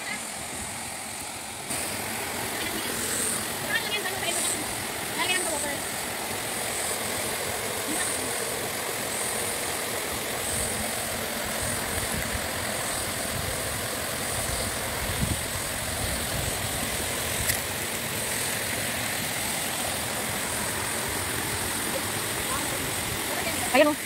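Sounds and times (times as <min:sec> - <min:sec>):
high hiss: 0:00.0 - 0:24.0
stream water flowing: 0:00.0 - 0:24.0.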